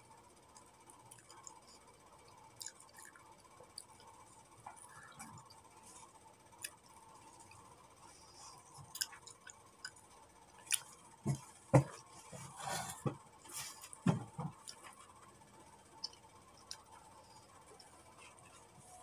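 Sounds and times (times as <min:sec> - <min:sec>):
wet chewing: 0:00.6 - 0:05.7, 0:06.5 - 0:11.0.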